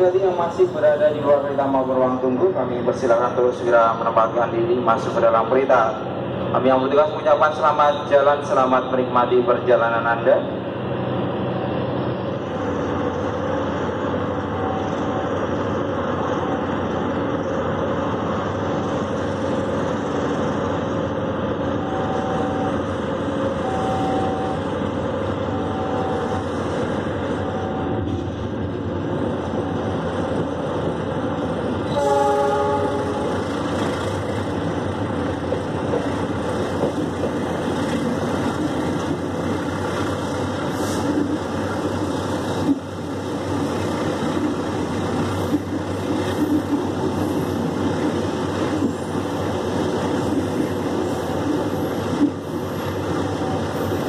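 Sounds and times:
train running and wheel noise: 0:00.0 - 0:54.0
locomotive horn: 0:31.9 - 0:33.4.

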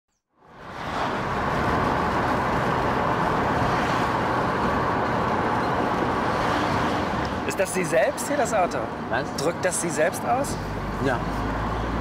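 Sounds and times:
car interior driving noise: 0:00.6 - 0:07.6.

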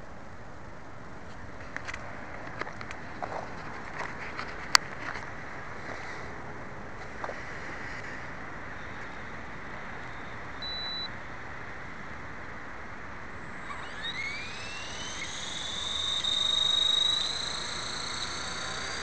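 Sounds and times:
rc helicopter motor whine: 0:07.0 - 0:10.8, 0:13.2 - 0:19.0
short high beep: 0:10.6 - 0:11.1.

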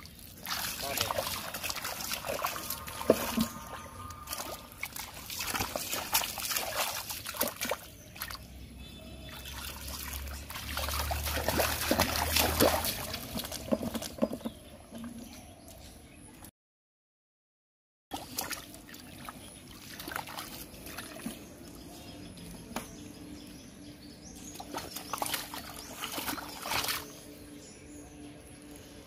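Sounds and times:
muddy water splashing: 0:00.0 - 0:14.4, 0:18.1 - 0:22.0, 0:24.4 - 0:27.4.

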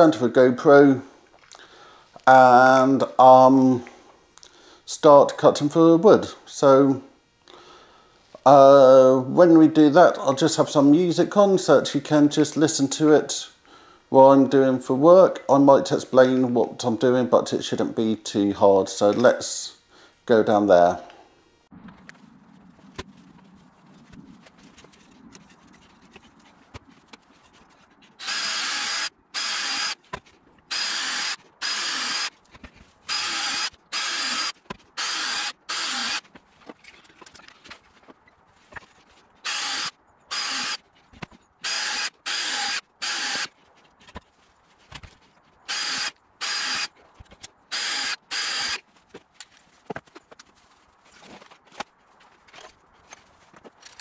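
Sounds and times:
cordless drill boring into wood: 0:28.2 - 0:30.0, 0:30.7 - 0:32.3, 0:33.1 - 0:36.2, 0:39.4 - 0:40.8, 0:41.6 - 0:43.5, 0:45.7 - 0:46.9, 0:47.7 - 0:48.8.

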